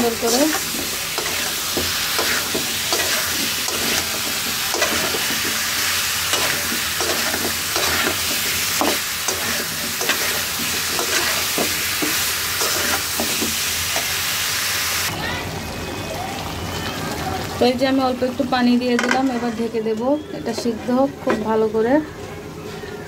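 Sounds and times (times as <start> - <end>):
metal spatula scraping a pan: 0.0 - 14.1, 20.4 - 21.8
food sizzling: 0.0 - 21.9.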